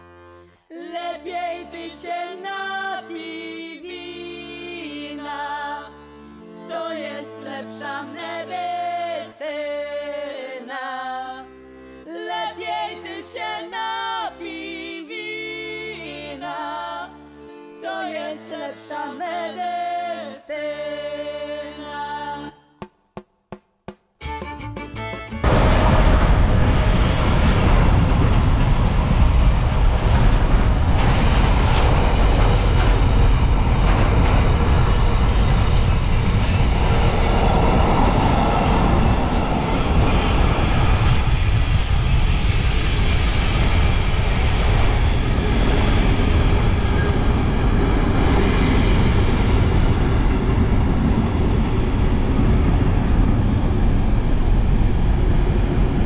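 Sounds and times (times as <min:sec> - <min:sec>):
freight train rumbling past: 0:24.9 - 0:56.0.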